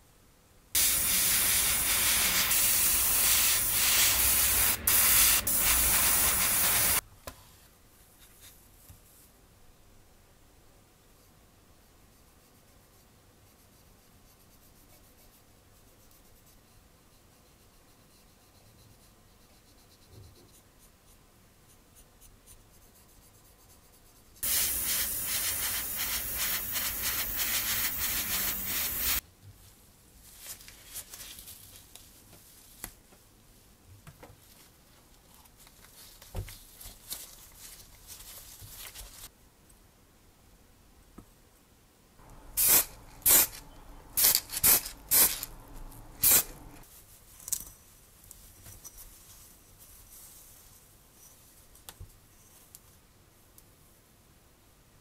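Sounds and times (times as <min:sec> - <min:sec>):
applicator brushing powder: 0:00.8 - 0:07.0, 0:24.4 - 0:29.2, 0:42.2 - 0:46.8
spray hiss: 0:00.8 - 0:07.0, 0:24.4 - 0:29.2, 0:42.2 - 0:46.8.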